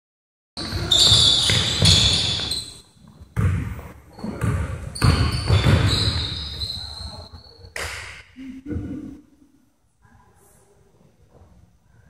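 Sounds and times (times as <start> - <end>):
shoes squeaking on wood: 0.6 - 3.2
basketball bouncing on wooden floor: 0.6 - 6.6.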